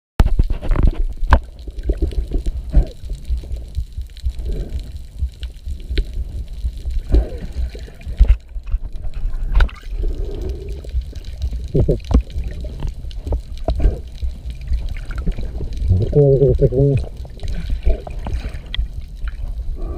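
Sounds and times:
underwater rumble of moving water: 0.3s - 19.9s
air bubbles gurgling: 0.4s - 19.9s.

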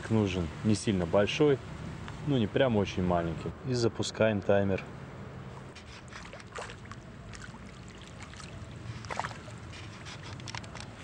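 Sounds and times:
wind: 0.0s - 11.0s
small waves on water: 5.4s - 11.0s.

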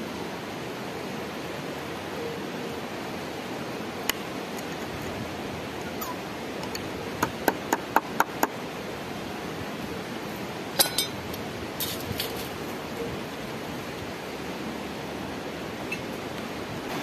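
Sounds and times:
hammer tapping on metal: 10.8s - 11.2s
metallic clink of tool: 10.8s - 11.2s.

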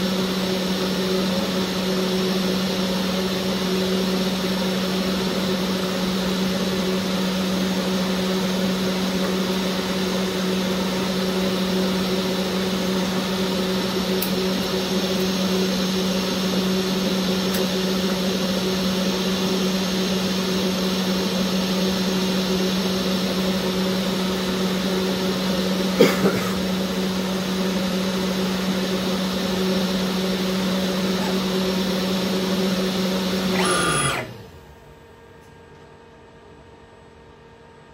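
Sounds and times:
engraving spindle humming: 27.2s - 34.9s
spindle winding down: 32.0s - 34.8s.

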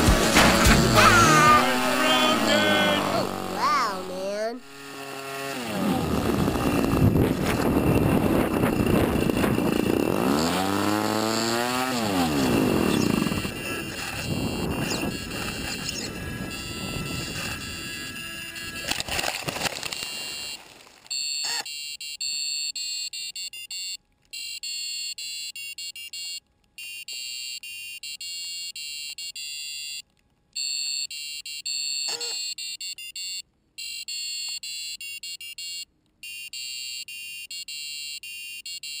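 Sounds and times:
electronic beeper alarm: 0.0s - 4.7s, 12.2s - 19.0s, 20.0s - 30.0s, 30.6s - 39.0s.

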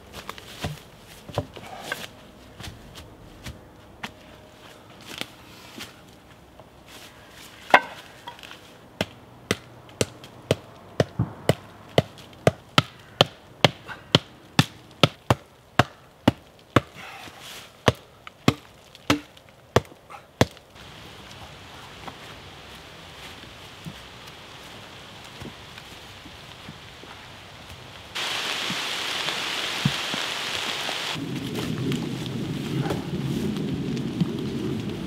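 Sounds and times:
wooden striker hitting stakes: 7.7s - 8.4s, 17.8s - 20.6s.

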